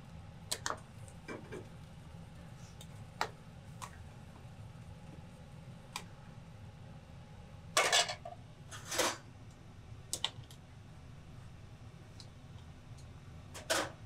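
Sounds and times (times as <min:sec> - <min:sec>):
metal pots and utensils clattering: 0:07.8 - 0:09.2.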